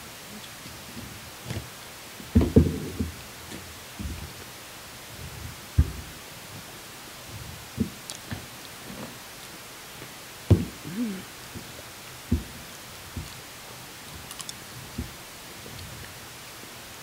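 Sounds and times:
dull knocks: 1.5s - 4.4s, 5.2s - 6.2s, 10.5s - 11.7s, 12.3s - 13.4s
faint crisp clicks: 14.3s - 14.6s.

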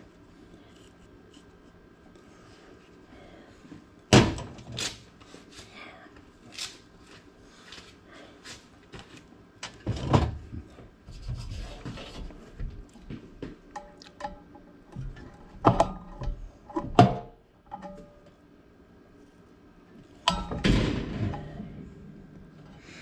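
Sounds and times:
knocks inside metal cabinet: 20.3s - 21.6s.

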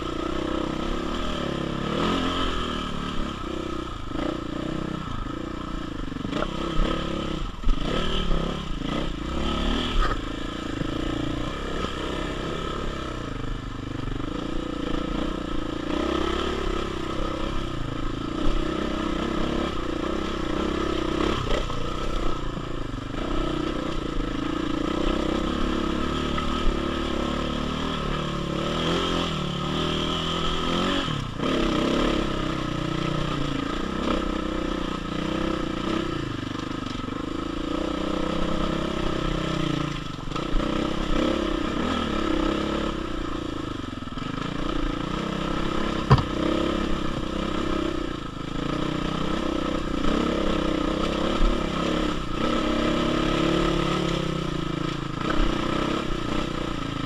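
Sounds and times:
dirt bike engine pulling hard: 0.0s - 57.0s
sharp knock: 46.1s - 46.4s.

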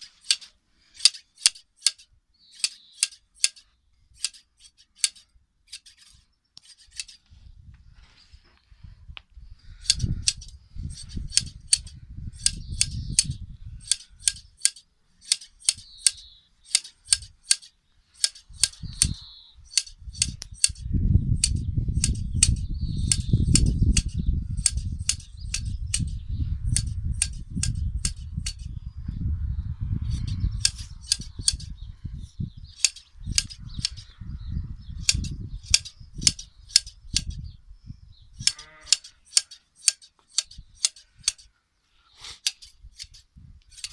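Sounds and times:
scissors snipping fleece: 9.9s - 19.1s, 21.4s - 28.7s, 38.4s - 41.5s, 42.3s - 43.9s
low rumble: 23.4s - 36.2s.

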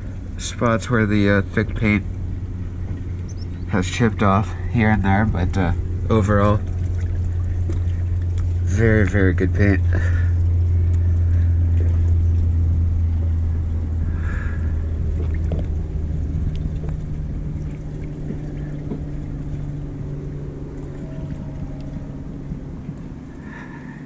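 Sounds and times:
higher hum: 0.0s - 24.0s
low motor hum: 0.0s - 24.0s.

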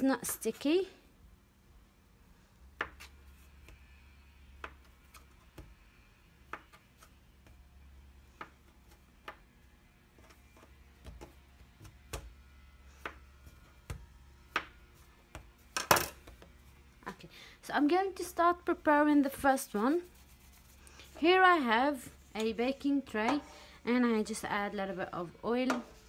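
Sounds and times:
knife cutting bread dough: 2.7s - 9.5s, 10.1s - 16.4s, 19.9s - 21.2s.

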